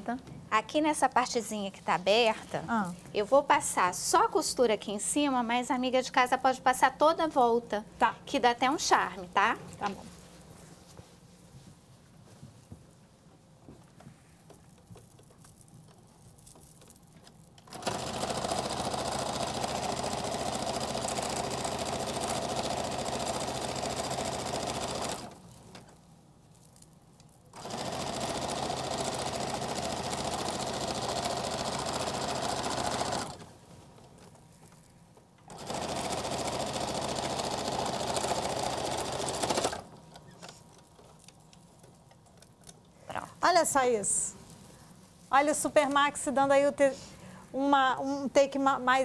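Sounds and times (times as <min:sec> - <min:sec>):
sewing machine stitching: 0:17.6 - 0:25.8, 0:27.5 - 0:33.5, 0:35.5 - 0:41.0.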